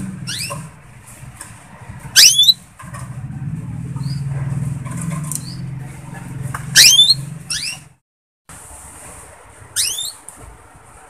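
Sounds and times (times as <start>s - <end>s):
canary chirping: 0.0s - 0.7s, 2.0s - 2.6s, 4.0s - 4.3s, 5.3s - 6.0s, 6.6s - 8.0s, 9.7s - 10.2s.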